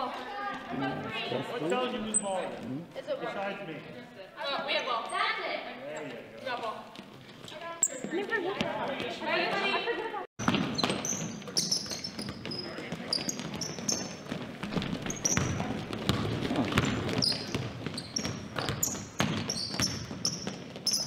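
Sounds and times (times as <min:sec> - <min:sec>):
sneakers squeaking: 0:06.0 - 0:09.7, 0:10.4 - 0:21.0
basketball bouncing on hardwood: 0:10.4 - 0:21.0.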